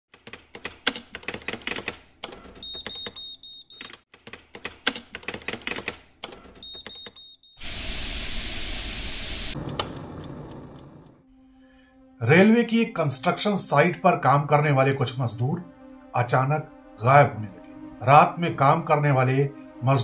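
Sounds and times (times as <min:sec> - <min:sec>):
steam venting hiss: 0:07.6 - 0:11.0.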